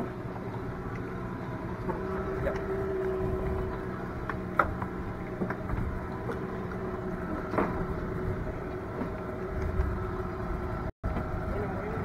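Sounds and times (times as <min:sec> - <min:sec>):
engine hum: 0:00.0 - 0:12.0.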